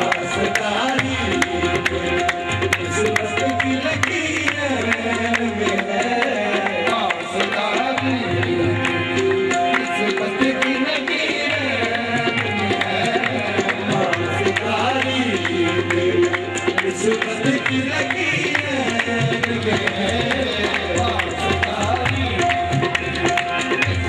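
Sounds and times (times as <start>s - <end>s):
harmonium melody: 0.0s - 24.0s
tabla rhythm: 0.0s - 24.0s.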